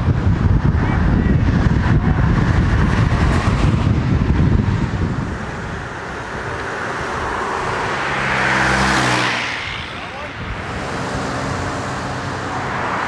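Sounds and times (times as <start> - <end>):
road traffic passing: 0.0 - 13.0
vehicle passing close: 0.0 - 13.0
wind rumbling on microphone: 0.0 - 13.0.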